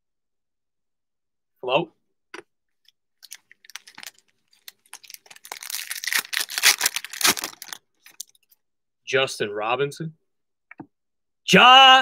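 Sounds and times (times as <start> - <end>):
foil wrapper crinkling and tearing: 3.2 - 8.4.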